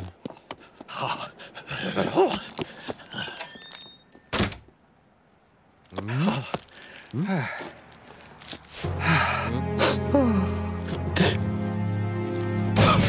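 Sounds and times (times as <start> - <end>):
shop doorbell jingling: 3.2 - 4.7.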